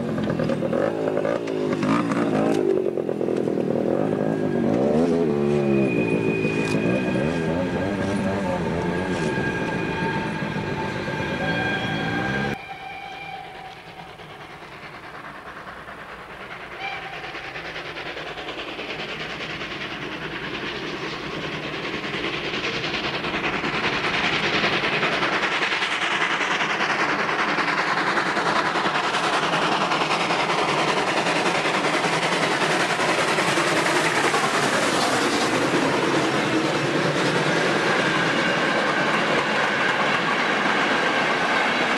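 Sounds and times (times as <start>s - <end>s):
wheel clatter on rail joints: 0.0s - 5.2s
steam locomotive passing: 0.0s - 41.9s
train whistle blast: 4.2s - 14.2s, 16.8s - 17.3s.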